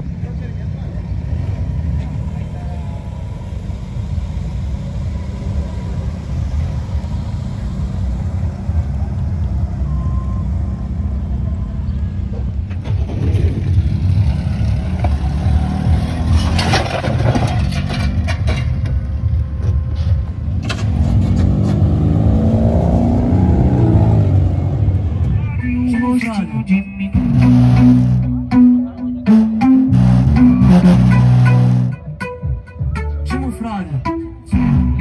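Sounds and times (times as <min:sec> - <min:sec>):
car engines rumbling: 0:00.0 - 0:35.0
engine revving: 0:12.8 - 0:18.4, 0:20.5 - 0:25.2, 0:27.2 - 0:28.5, 0:29.3 - 0:32.1.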